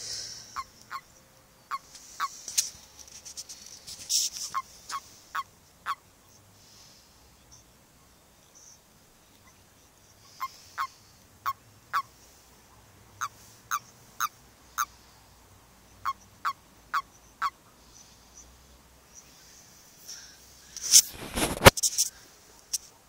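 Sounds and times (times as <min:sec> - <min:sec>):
toads croaking: 0:00.0 - 0:02.8, 0:04.2 - 0:06.9, 0:07.5 - 0:19.7.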